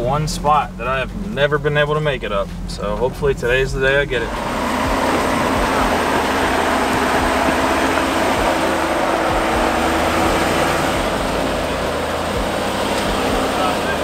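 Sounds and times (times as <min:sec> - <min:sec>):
engine running at low revs: 0:00.0 - 0:14.0
steady rushing noise: 0:00.0 - 0:14.0.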